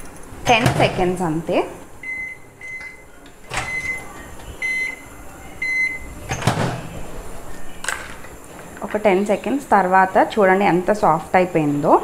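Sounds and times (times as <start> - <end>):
microwave keypad beeps: 2.0 - 6.1.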